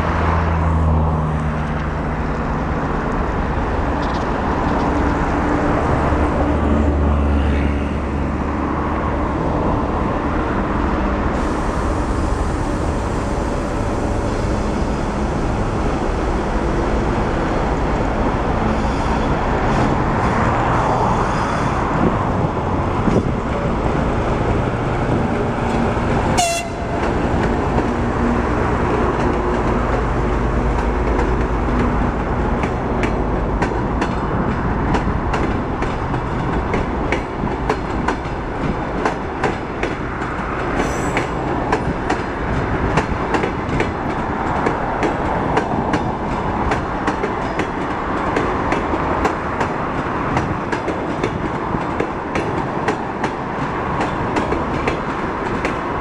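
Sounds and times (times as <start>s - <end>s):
locomotive diesel engine droning: 11.0s - 20.0s
train wheels clattering on rail joints: 25.0s - 56.0s.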